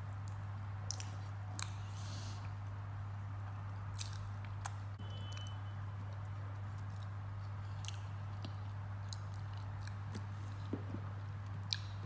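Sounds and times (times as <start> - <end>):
steady low hum: 0.0 - 12.0
person chewing with small clicks: 0.2 - 1.8, 3.4 - 10.7, 11.4 - 12.0.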